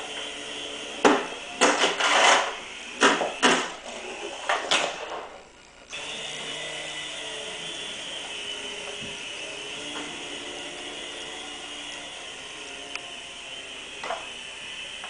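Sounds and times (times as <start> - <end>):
toy helicopter motor whirring: 5.9 - 15.0.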